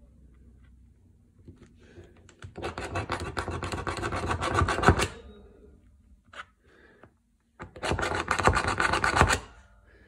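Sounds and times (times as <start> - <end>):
screw punch rasping through paper: 2.4 - 5.1, 7.6 - 9.5.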